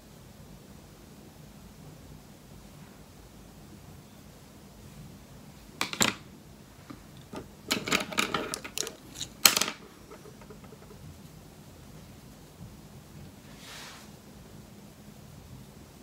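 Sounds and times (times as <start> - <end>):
makeup tools clicking and clattering: 5.8 - 6.2, 6.9 - 11.1.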